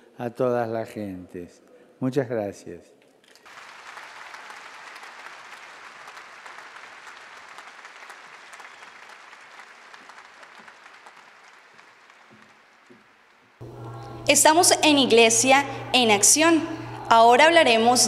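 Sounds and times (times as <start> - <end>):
crowd applauding: 3.4 - 14.2.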